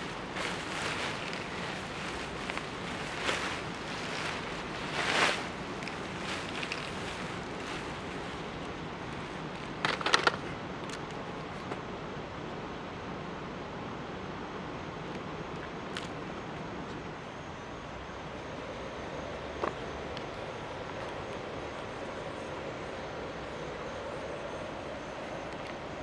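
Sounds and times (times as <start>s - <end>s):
fabric and power cord rustling: 0.0s - 11.0s
steady background hiss: 0.0s - 26.0s.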